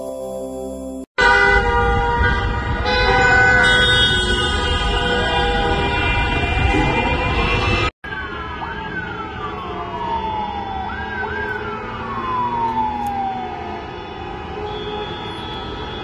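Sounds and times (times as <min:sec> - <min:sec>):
street traffic hum: 0:01.2 - 0:16.0
siren wailing: 0:04.8 - 0:16.0.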